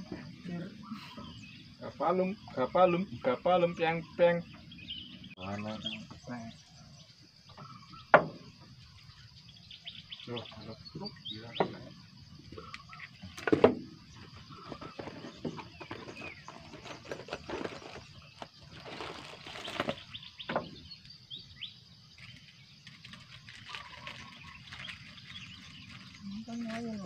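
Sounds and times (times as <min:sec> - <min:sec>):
bird chirps: 0:00.0 - 0:27.0
fishing gear knocking and rustling: 0:12.5 - 0:20.7.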